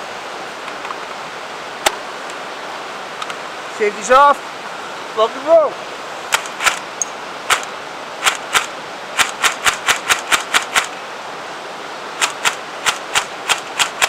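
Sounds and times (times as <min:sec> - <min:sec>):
airsoft gun firing: 0:07.5 - 0:10.9, 0:12.2 - 0:14.0.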